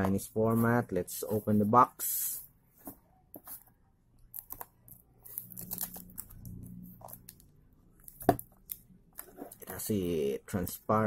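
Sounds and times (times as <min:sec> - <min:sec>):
faint low hum: 0:02.7 - 0:10.9.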